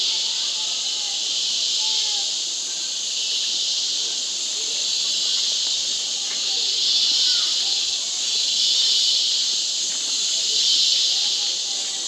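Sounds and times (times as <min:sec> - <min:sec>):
insects chorus: 0:00.0 - 0:12.0.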